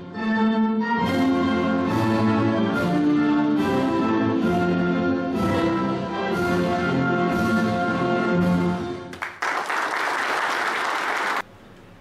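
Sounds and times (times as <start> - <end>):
orchestral music with brass: 0.0 - 9.1
applause: 9.1 - 11.5.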